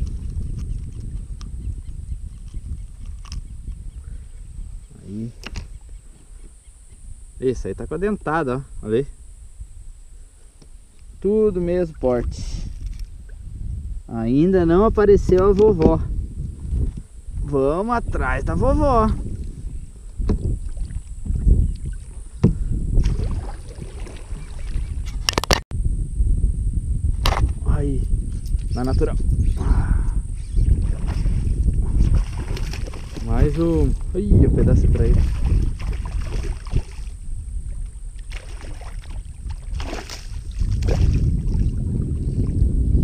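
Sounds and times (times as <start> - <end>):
wind on microphone: 0.0 - 43.0
paddle splashing in water: 23.0 - 25.0, 30.8 - 33.3, 35.2 - 37.1, 37.8 - 41.7
short sharp splashes or knocks: 35.2 - 37.1, 38.3 - 41.5.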